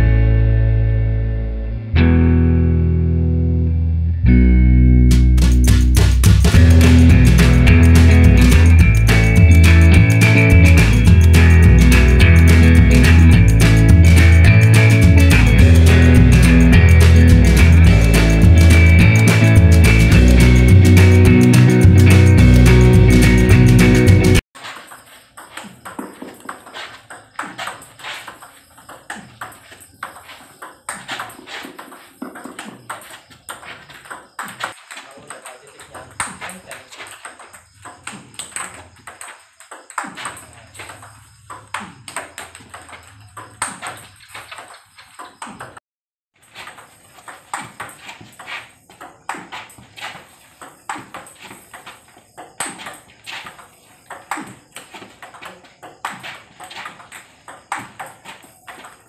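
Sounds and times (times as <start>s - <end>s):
table tennis balls clicking: 24.6s - 45.8s, 46.4s - 59.0s.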